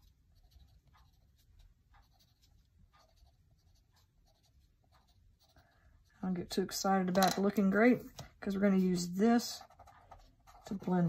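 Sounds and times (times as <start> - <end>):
pencil scratching on paper: 0.0 - 6.6, 8.5 - 11.0.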